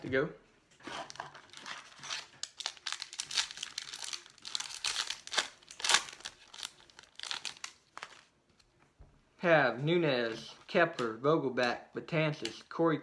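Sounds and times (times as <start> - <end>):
wrapper crinkling and tearing: 0.8 - 8.3.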